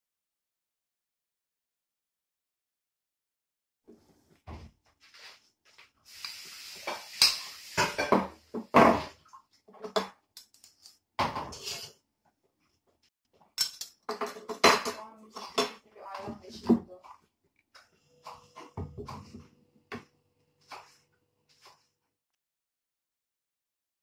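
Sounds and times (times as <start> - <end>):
metal spoon scraping ceramic dish: 11.5 - 12.0.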